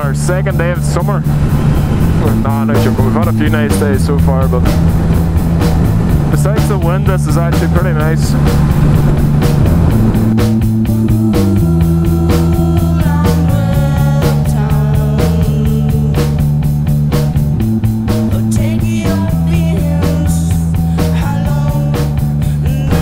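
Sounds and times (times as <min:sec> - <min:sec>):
rock music with bass: 0:00.0 - 0:23.0.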